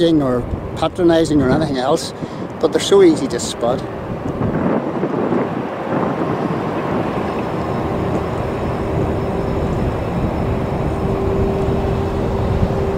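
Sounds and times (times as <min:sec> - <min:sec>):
droning hum: 0:00.0 - 0:12.9
machinery engine rumble: 0:00.0 - 0:12.9.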